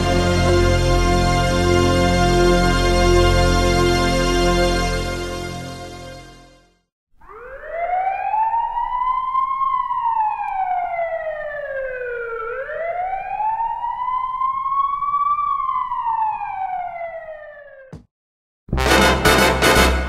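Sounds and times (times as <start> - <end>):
police siren wailing: 7.2 - 17.9.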